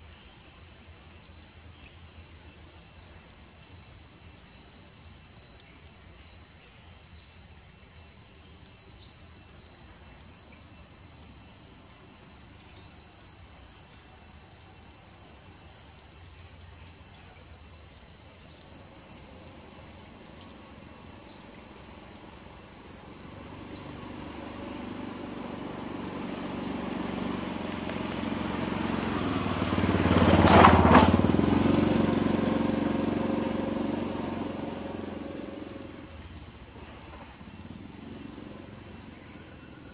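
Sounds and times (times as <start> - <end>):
high-pitched insect drone: 0.0 - 39.9
passing vehicle rumble: 23.1 - 36.1.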